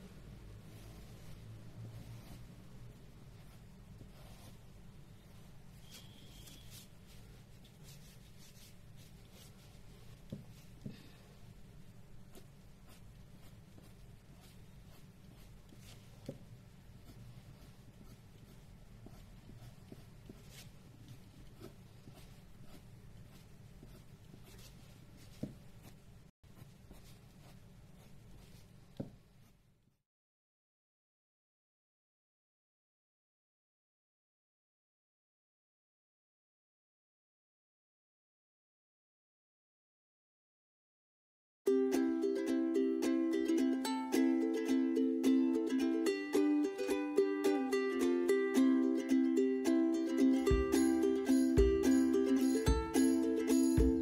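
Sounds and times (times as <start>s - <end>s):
low steady hum: 0.0s - 29.8s
pencil sketching on paper: 0.5s - 10.8s, 12.2s - 28.8s.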